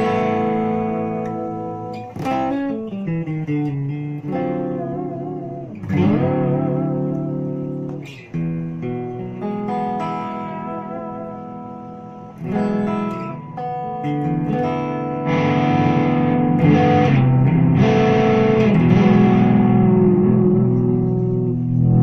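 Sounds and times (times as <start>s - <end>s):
electric guitar chords: 0.0s - 22.0s.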